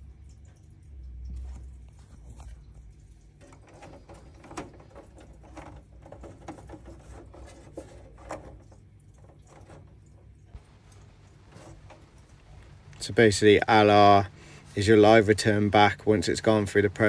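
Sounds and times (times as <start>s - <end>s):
low steady hum: 0.0s - 17.0s
fingers handling electrical cables: 3.4s - 10.2s.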